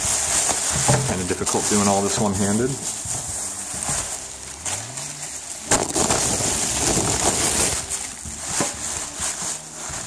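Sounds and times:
plastic wrap crinkling: 0.0s - 10.0s.

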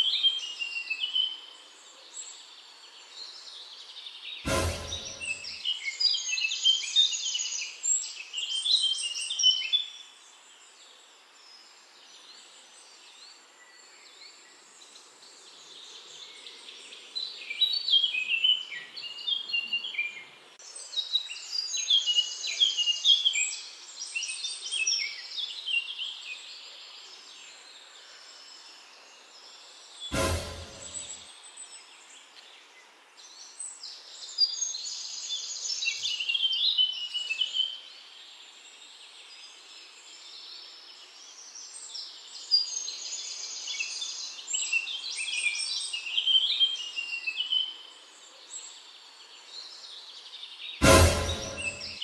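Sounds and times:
faint outdoor hiss: 0.0s - 4.4s, 5.1s - 50.8s
bird chirping: 4.3s - 7.8s.

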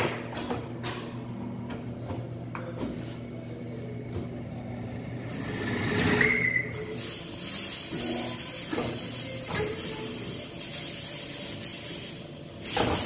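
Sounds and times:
high squeal: 5.4s - 7.0s.

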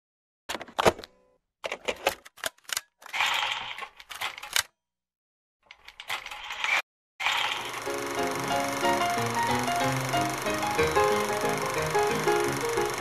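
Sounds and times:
rapid mechanical clicking and rattling: 5.7s - 13.0s.

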